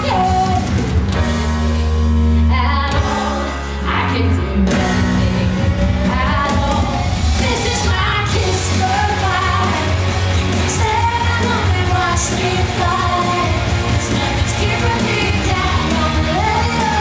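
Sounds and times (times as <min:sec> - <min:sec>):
rock song with singing: 0:00.0 - 0:17.0.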